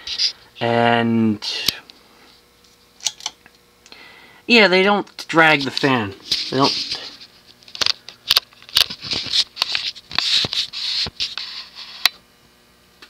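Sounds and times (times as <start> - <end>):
scratchy rustles: 5.5 - 7.6, 8.8 - 12.0.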